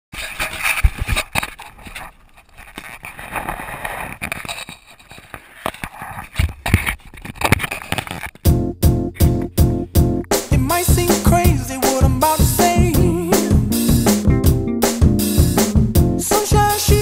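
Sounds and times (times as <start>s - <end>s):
music with steady beat: 8.5s - 17.0s.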